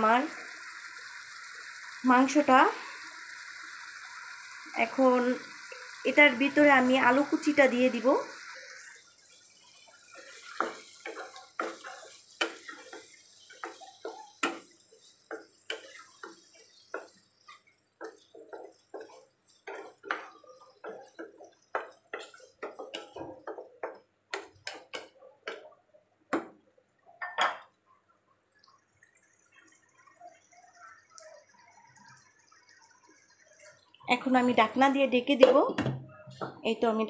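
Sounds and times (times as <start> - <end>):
wooden spatula scraping a pan: 8.3 - 25.8.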